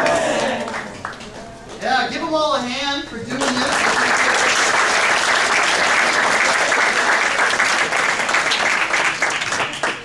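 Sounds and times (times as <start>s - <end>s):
students applauding: 0.0s - 1.2s, 3.3s - 10.0s.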